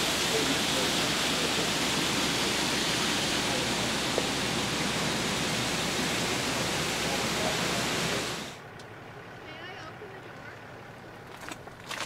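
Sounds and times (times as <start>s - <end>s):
steady rushing noise: 0.0s - 8.6s.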